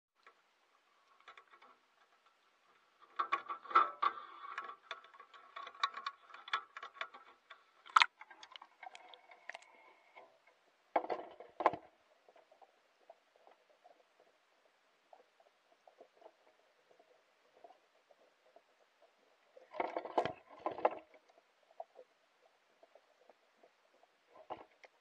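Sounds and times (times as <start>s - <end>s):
light clicks and ticks: 0.2s - 25.0s
small watery splashes: 7.8s - 9.9s
bait ball splashing into water: 7.9s - 8.2s.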